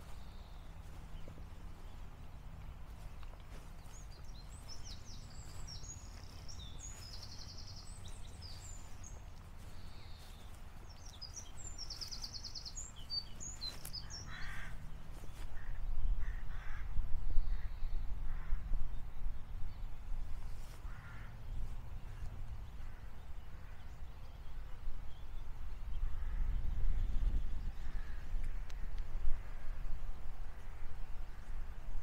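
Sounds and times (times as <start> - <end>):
songbird chirps and trills: 0.0 - 16.2
crow cawing: 14.0 - 14.8, 15.6 - 16.9, 20.9 - 21.4.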